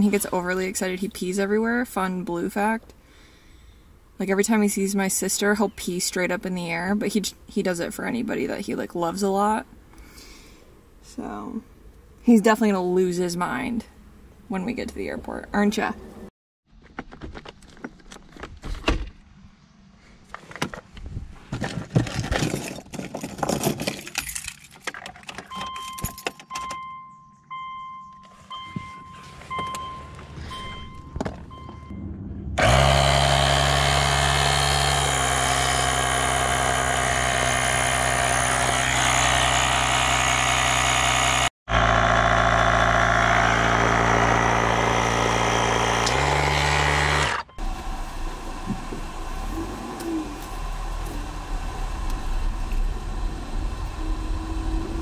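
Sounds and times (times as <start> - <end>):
electronic beeps: 25.5 - 32.1
tire inflator buzzing: 32.6 - 55.0.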